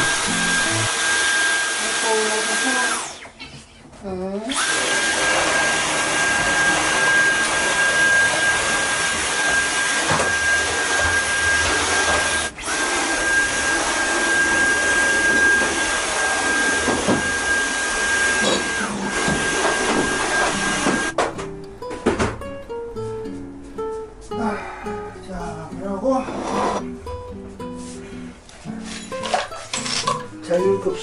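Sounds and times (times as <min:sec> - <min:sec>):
vacuum cleaner running: 0:00.0 - 0:03.4, 0:04.5 - 0:21.2.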